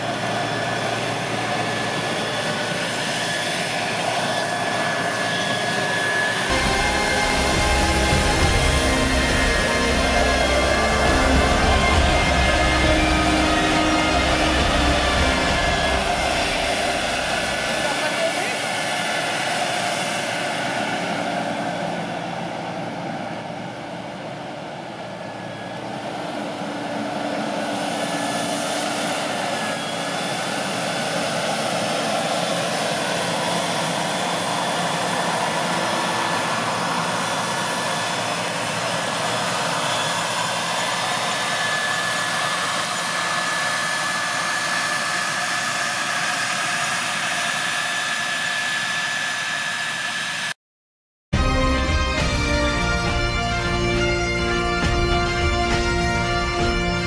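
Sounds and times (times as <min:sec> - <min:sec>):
tractor diesel engine running: 0:00.0 - 0:18.6
steady high whine: 0:00.0 - 0:50.6, 0:51.4 - 0:57.0.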